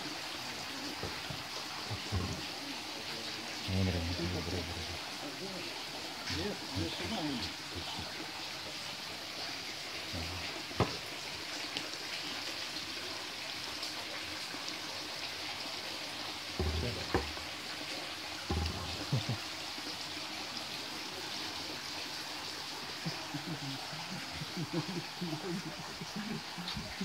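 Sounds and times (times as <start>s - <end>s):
stream water running over stones: 0.0s - 27.0s
dull thumps: 1.0s - 2.4s, 10.8s - 11.0s, 16.6s - 17.5s, 18.5s - 19.3s.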